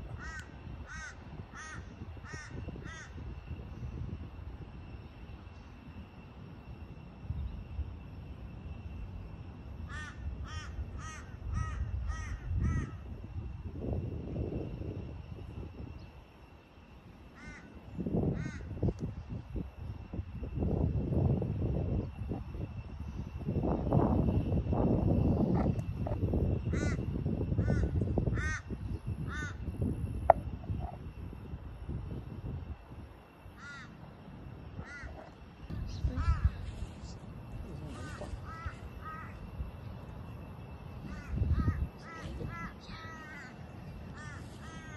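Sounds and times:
wind rumble on microphone: 0:00.0 - 0:44.9
crow cawing: 0:00.1 - 0:03.2, 0:09.9 - 0:13.0, 0:17.4 - 0:18.8, 0:26.7 - 0:29.6, 0:33.6 - 0:34.0, 0:34.8 - 0:35.3, 0:36.2 - 0:36.6, 0:37.9 - 0:39.4, 0:41.0 - 0:44.9.

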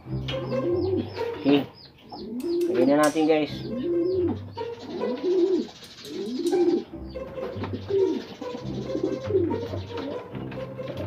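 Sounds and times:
pigeons cooing: 0:00.0 - 0:11.0
sharp clicks: 0:02.4 - 0:03.4.

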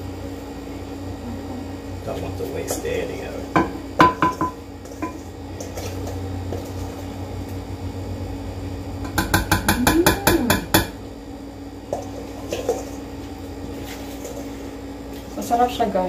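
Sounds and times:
knocks against bowl: 0:03.6 - 0:04.6, 0:09.1 - 0:11.0
utensil scraping metal bowl: 0:03.6 - 0:07.2, 0:13.7 - 0:15.4.

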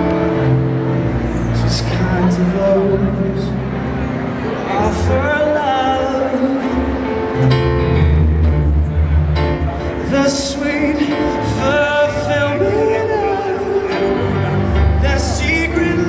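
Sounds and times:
grand piano accompaniment: 0:00.0 - 0:16.0
man singing: 0:01.4 - 0:03.9, 0:04.6 - 0:07.7, 0:09.9 - 0:16.0.

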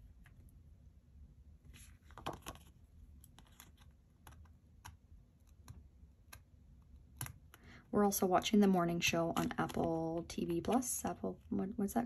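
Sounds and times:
plastic sticker sheet crinkling: 0:09.3 - 0:10.9.

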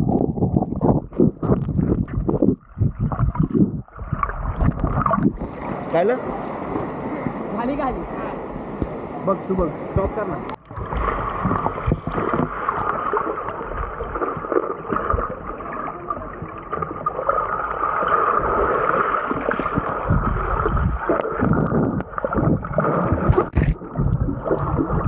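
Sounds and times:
bubbles churning and splashing: 0:00.0 - 0:05.8, 0:10.6 - 0:25.0
stream rushing underwater: 0:00.0 - 0:25.0.

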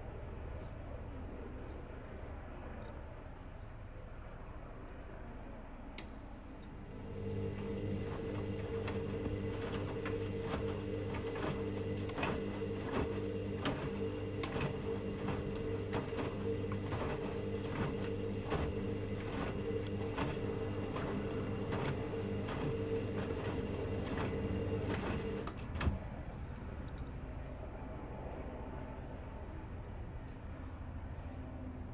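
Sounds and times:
washing machine motor humming: 0:06.7 - 0:26.2
laundry splashing and thudding: 0:07.0 - 0:26.2.

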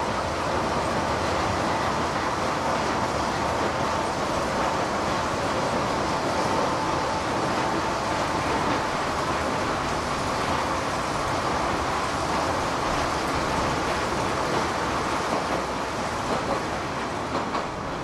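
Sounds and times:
rail cart wheels rumbling: 0:00.0 - 0:18.0
sharp clacks: 0:17.3 - 0:17.8.

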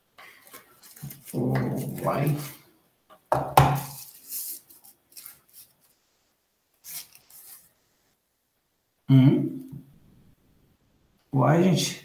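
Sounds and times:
tissue paper rustling: 0:00.3 - 0:02.6, 0:03.8 - 0:06.1, 0:06.8 - 0:07.8
short vocal sound: 0:09.1 - 0:09.8.

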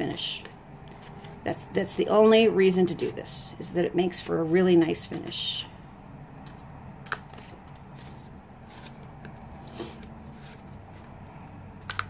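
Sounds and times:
card rustling: 0:00.4 - 0:01.5, 0:06.4 - 0:12.0.

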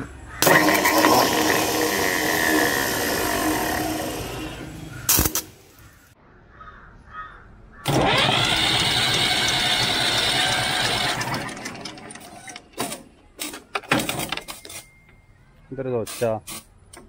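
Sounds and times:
tractor diesel engine whirring: 0:00.0 - 0:05.7, 0:07.8 - 0:15.2.

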